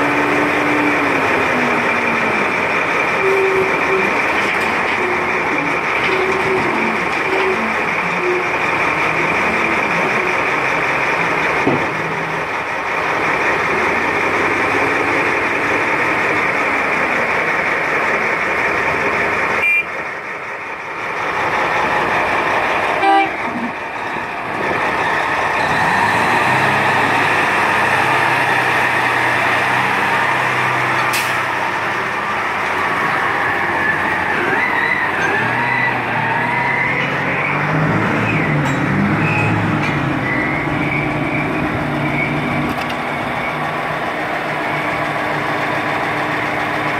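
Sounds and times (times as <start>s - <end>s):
heavy diesel engines running: 0.0s - 46.9s.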